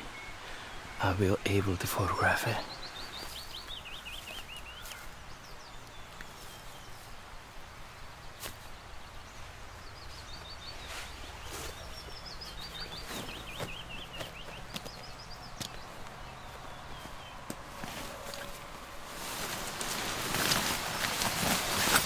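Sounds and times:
warbler singing: 0.0s - 7.2s, 8.0s - 18.6s
footsteps and gear knocking: 12.8s - 18.6s.

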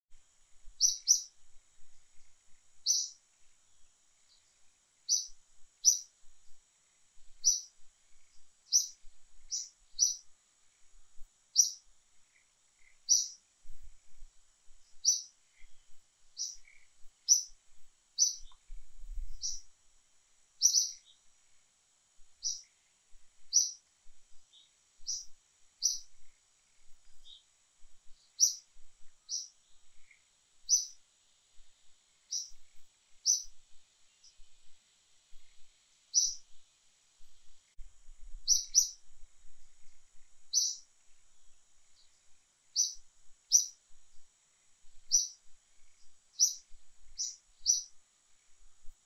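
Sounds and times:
faint high-pitched whine: 0.0s - 49.0s
bird chirping: 0.8s - 1.4s, 2.0s - 6.6s, 7.2s - 10.9s, 11.5s - 17.6s, 18.2s - 19.7s, 20.6s - 21.3s, 22.4s - 22.8s, 23.4s - 31.0s, 32.3s - 36.6s, 38.4s - 39.1s, 40.4s - 40.9s, 41.8s - 43.8s, 45.0s - 48.5s.

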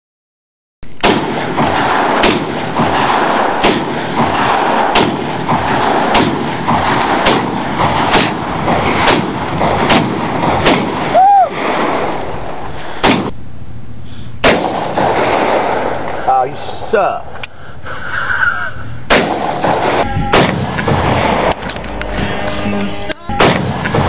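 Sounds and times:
rifle shots: 1.0s - 13.4s, 14.4s - 16.2s, 19.1s - 21.8s, 23.4s - 24.0s.

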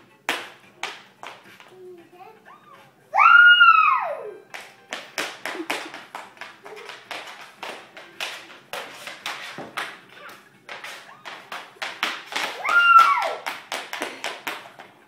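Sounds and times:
dance steps tapping on wood floor: 4.5s - 15.0s.

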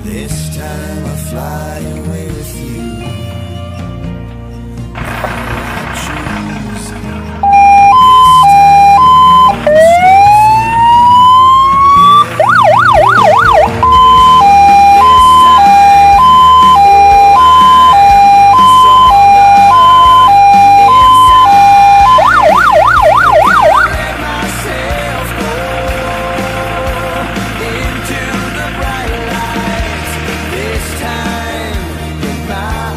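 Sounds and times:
fire truck siren: 7.4s - 29.0s.

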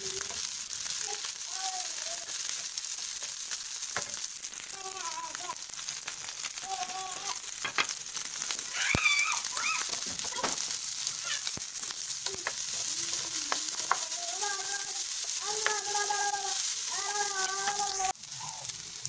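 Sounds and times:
fried rice sizzling in pan: 0.0s - 19.0s
spatula stirring and tapping pan: 2.2s - 4.3s, 5.9s - 18.1s.

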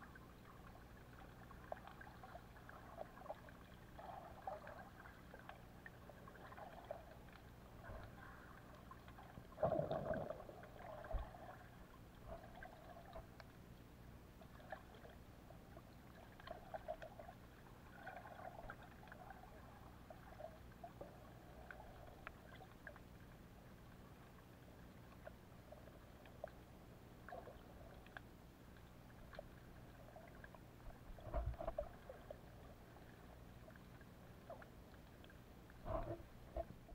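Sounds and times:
muffled water rush: 0.0s - 36.9s
muffled water swells: 0.0s - 36.9s
underwater crackling clicks: 13.1s - 13.6s, 27.3s - 29.6s, 34.4s - 36.9s.

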